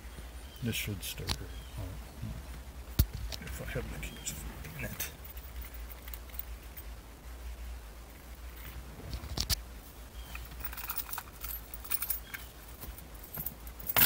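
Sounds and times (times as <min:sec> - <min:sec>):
car keys jangling: 0:10.4 - 0:14.0.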